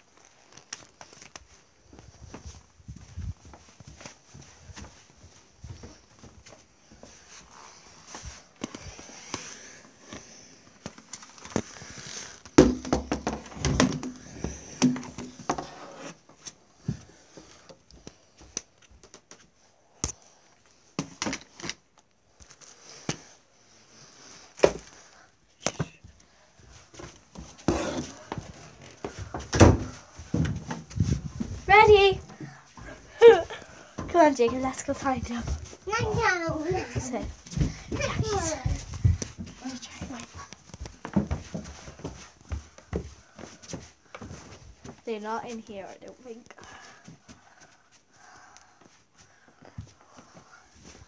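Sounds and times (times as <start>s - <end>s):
wooden thumps: 12.6s - 15.7s.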